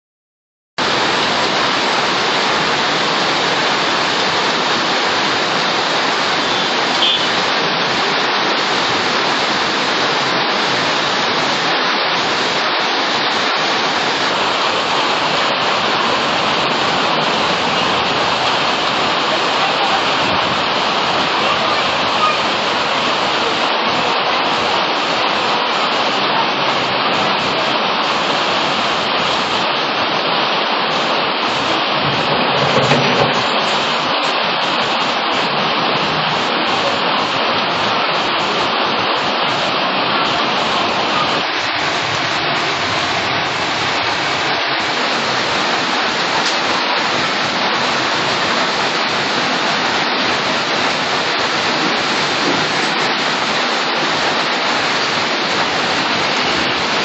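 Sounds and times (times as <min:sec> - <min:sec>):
steady rain: 0:00.8 - 0:57.0.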